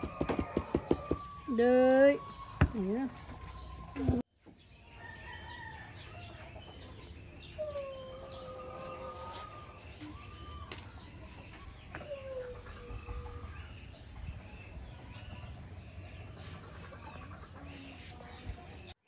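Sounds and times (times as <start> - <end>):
roosters crowing: 0.0 - 4.2, 4.8 - 6.7, 7.4 - 15.8.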